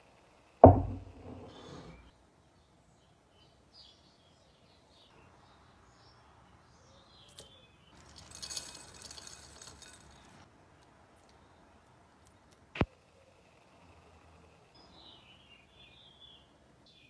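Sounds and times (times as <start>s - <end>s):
nuts pattering into ceramic dish: 7.3s - 10.4s.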